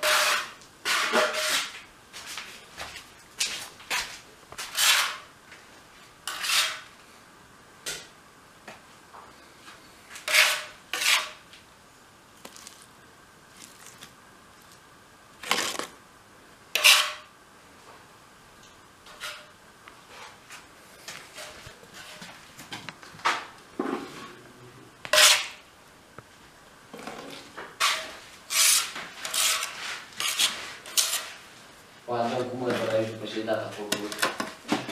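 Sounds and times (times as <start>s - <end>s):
utensil scraping against dish: 0.0s - 1.8s, 4.6s - 5.3s, 6.2s - 6.9s, 10.2s - 11.4s, 16.8s - 17.3s, 19.1s - 19.5s, 25.1s - 25.6s, 27.3s - 31.4s.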